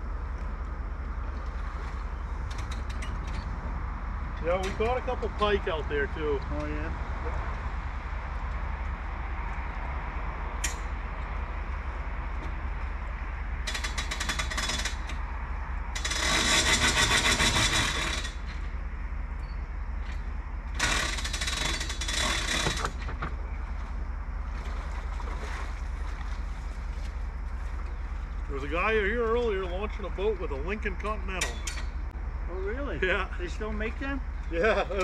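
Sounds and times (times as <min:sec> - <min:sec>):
hand-crank winch ratcheting: 0:13.6 - 0:15.3, 0:15.9 - 0:18.8, 0:20.0 - 0:23.3, 0:31.4 - 0:32.0.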